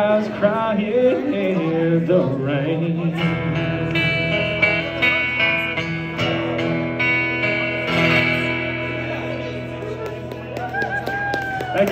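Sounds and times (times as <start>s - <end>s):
acoustic guitar strumming: 0.0s - 10.5s.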